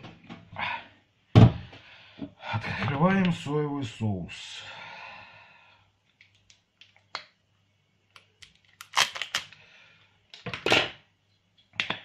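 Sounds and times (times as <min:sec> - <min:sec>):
plastic seal crackling: 0:08.4 - 0:09.5.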